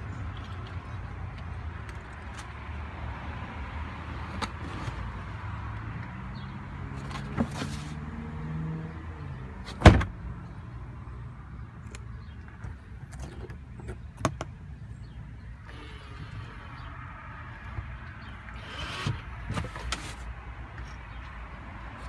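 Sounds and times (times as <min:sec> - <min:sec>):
small electric motor humming: 0:15.7 - 0:16.7.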